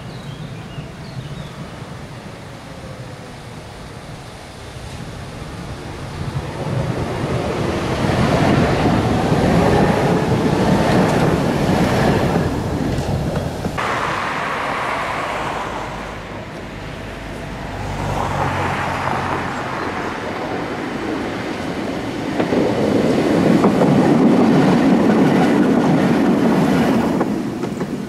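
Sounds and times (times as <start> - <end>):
tram wheels rumbling on rails: 0.0 - 28.0
sharp rail clicks: 9.6 - 17.5.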